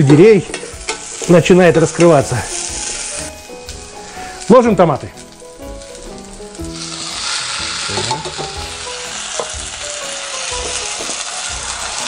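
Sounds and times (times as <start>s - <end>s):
pan sizzling: 0.0s - 12.0s.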